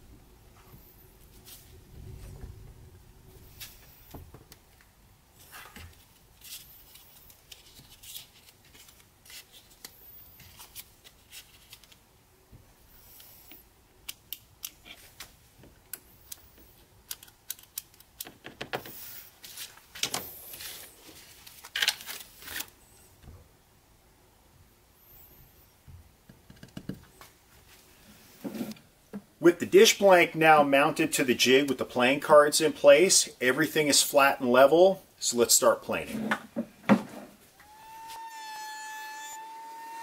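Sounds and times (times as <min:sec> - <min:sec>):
papery rustles: 0:05.4 - 0:12.0, 0:19.4 - 0:22.7.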